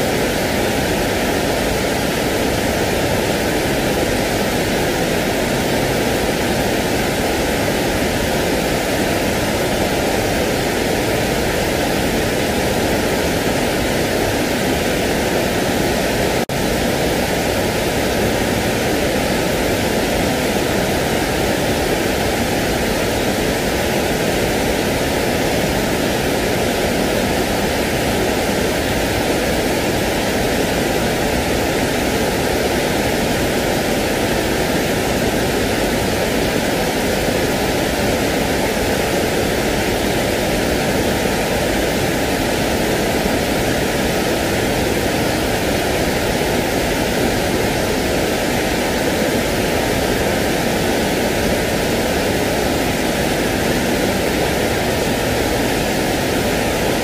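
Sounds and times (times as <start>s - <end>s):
steady rushing noise: 0.0s - 57.0s.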